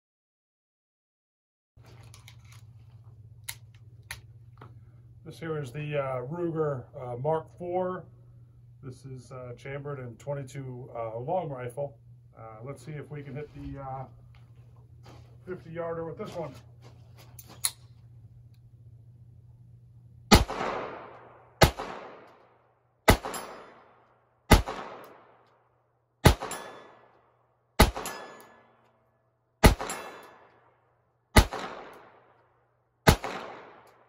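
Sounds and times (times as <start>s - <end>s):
pistol shots echoing: 20.3s - 22.4s, 23.1s - 25.4s, 26.2s - 27.2s, 27.8s - 28.7s, 29.6s - 30.7s, 31.4s - 32.3s, 33.0s - 34.0s.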